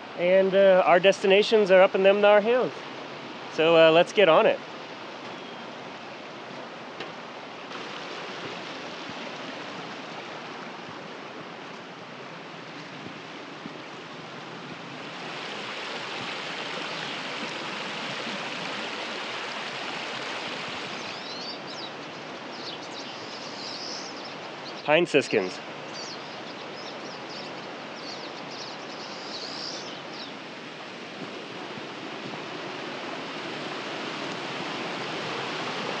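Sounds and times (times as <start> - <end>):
birds chirping: 5.2 - 6.0, 20.8 - 30.4
creek running over stones: 5.8 - 14.2, 15.0 - 22.6.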